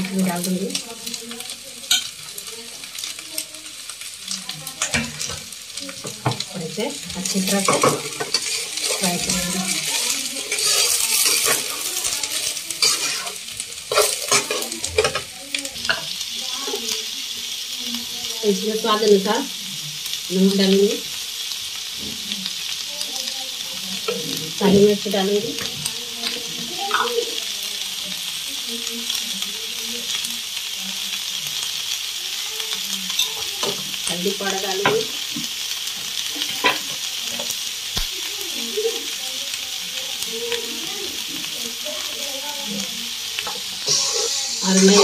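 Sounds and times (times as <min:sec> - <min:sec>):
vegetables sizzling in hot oil: 0:00.0 - 0:45.0
spatula scraping and knocking pan: 0:04.8 - 0:16.1, 0:43.4 - 0:45.0.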